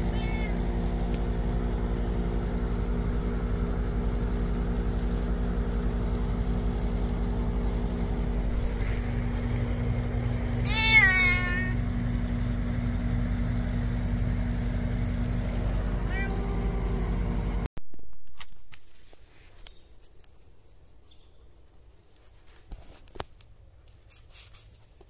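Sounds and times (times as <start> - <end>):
cat meowing: 0.0 - 0.6, 10.6 - 11.8, 16.1 - 16.7
steady low hum: 0.0 - 19.4.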